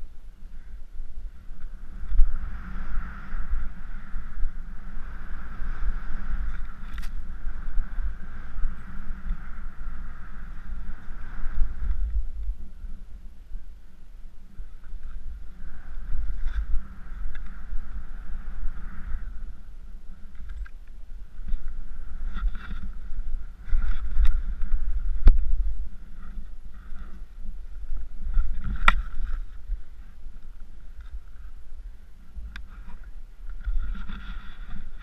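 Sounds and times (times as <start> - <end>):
wind rumble on microphone: 0.0 - 35.0
skis swishing through powder snow: 1.7 - 13.0.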